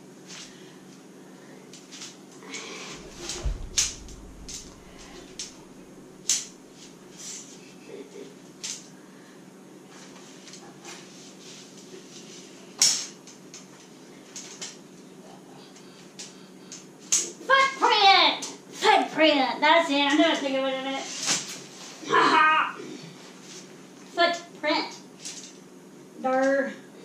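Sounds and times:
low thump: 3.0 - 7.0.

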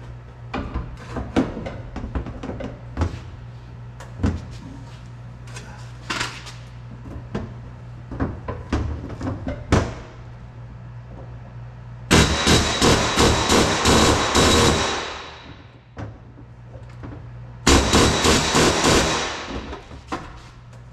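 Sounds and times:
steady low hum: 0.0 - 20.9
sharp metal knocks and clanks: 12.1 - 15.8, 17.7 - 20.1.

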